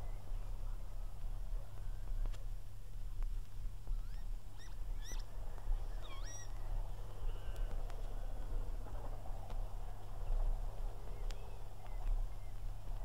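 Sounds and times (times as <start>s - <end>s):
faint distant rumble: 0.0s - 13.0s
steady low hum: 0.0s - 13.0s
lapwings calling: 3.9s - 9.5s.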